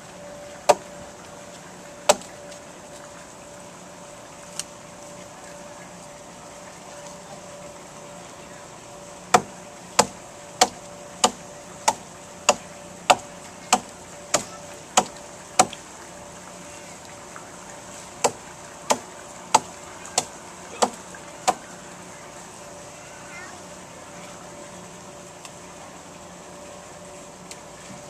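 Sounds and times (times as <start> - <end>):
blade chopping into wooden log: 9.3 - 15.8, 18.2 - 21.6.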